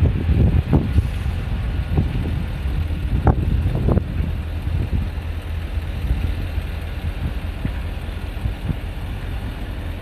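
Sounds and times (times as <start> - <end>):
wind on microphone: 0.0 - 5.3
distant traffic rumble: 0.0 - 10.0.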